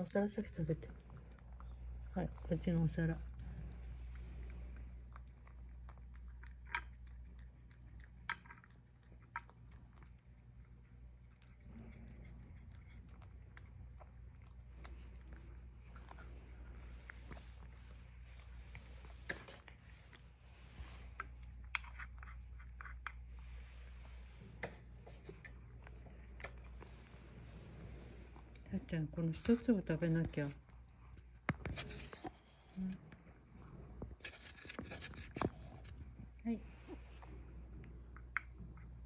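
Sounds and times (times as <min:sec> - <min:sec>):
cat crunching dry kibble: 0:00.1 - 0:23.6, 0:29.3 - 0:36.3.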